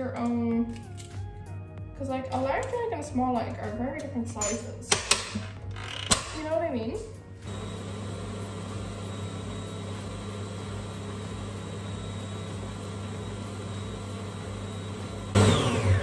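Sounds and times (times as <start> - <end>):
stand mixer motor running: 7.5 - 16.0.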